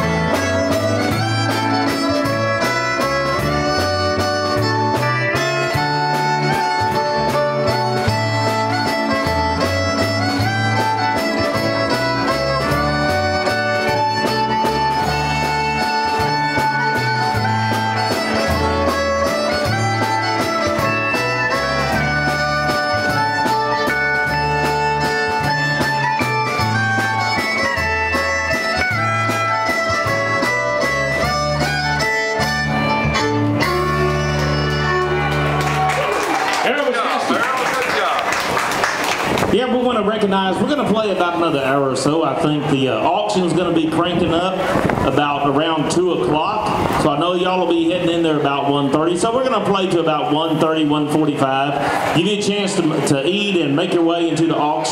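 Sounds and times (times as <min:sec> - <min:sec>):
steady beat: 0:00.0 - 0:35.9
bass line: 0:00.0 - 0:37.2, 0:38.5 - 0:54.9
fiddle playing tune: 0:00.0 - 0:54.9.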